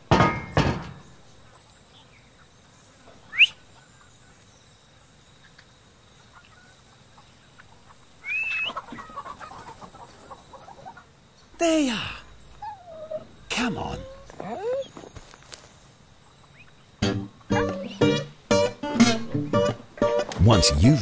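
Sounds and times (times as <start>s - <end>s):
hens clucking: 5.4s - 11.5s.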